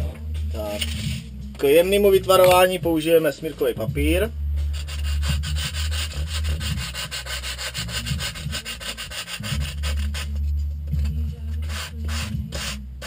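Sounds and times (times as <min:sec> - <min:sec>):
foam scratching on sandpaper: 0:04.8 - 0:10.5, 0:11.6 - 0:12.8.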